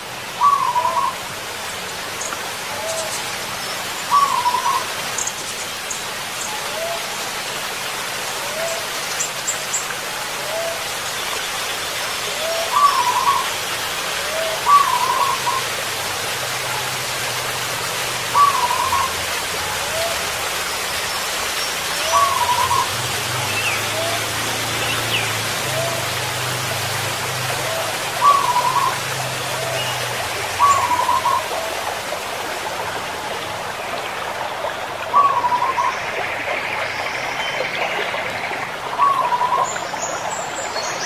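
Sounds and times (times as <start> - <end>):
doves cooing rolling trill: 0.3 - 1.3, 4.0 - 5.3, 10.3 - 11.0, 12.3 - 17.1, 17.7 - 36.5, 38.7 - 39.9.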